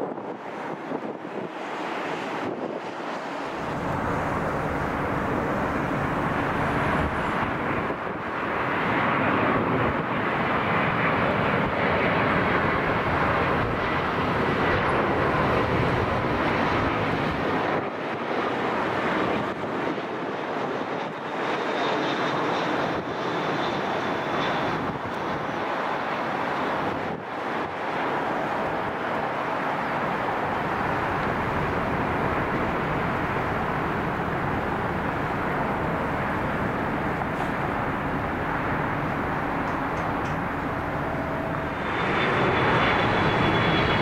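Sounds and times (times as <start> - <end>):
jet airliner passing: 0.0 - 44.0
thin high whine: 33.6 - 44.0.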